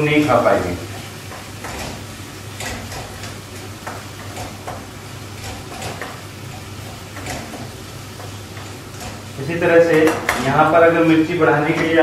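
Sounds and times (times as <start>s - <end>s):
spatula knocking and scraping pan: 1.0s - 10.5s.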